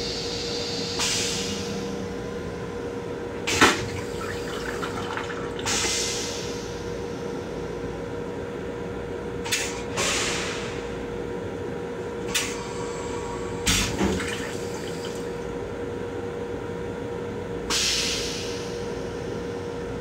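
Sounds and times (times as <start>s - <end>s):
steady hum: 0.0s - 9.5s
toilet flushing: 3.5s - 6.6s, 13.7s - 15.4s
water rinsing bowl: 4.0s - 5.7s.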